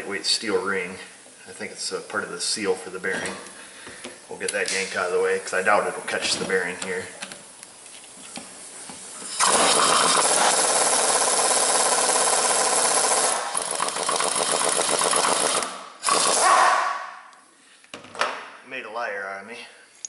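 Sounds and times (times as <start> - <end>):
air impact wrench hammering: 9.2 - 16.8.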